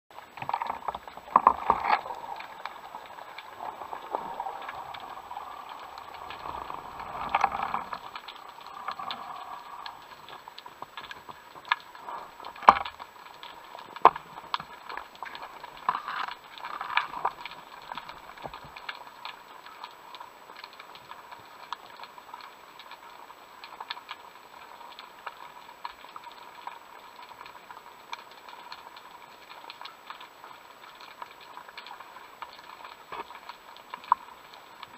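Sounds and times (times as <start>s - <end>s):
water rushing underwater: 0.1s - 20.1s
small clicks and crackles: 0.1s - 34.9s.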